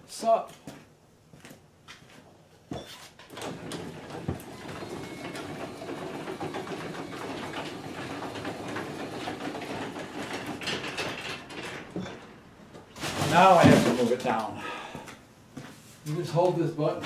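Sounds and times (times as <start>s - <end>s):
garage door opener motor: 3.3s - 12.5s.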